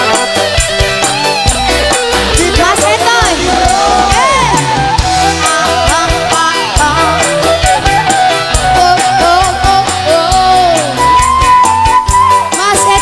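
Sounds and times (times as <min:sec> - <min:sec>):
bass line: 0:00.0 - 0:13.0
pitch-bending melody: 0:00.0 - 0:13.0
steady drum beat: 0:00.0 - 0:13.0.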